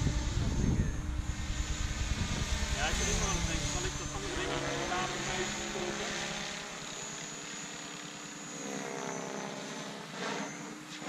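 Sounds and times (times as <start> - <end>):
rc helicopter rotor whine: 0.0 - 11.0
high thin tone: 0.5 - 6.9.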